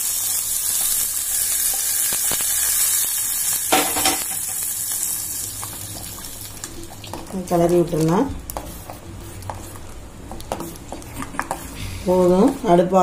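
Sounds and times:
hot ghee sizzling: 0.0s - 13.0s
ladle stirring: 5.5s - 12.8s.

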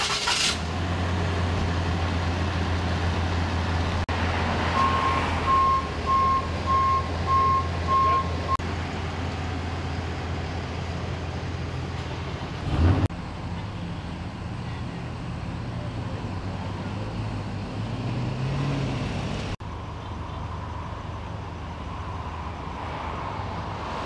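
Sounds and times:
truck engine idling: 0.0s - 18.3s
truck reversing alarm beeping: 4.7s - 8.6s.

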